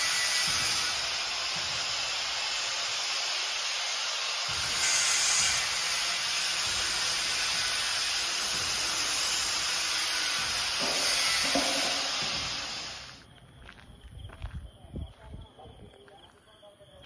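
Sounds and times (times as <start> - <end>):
loud rushing hiss: 0.0 - 13.2.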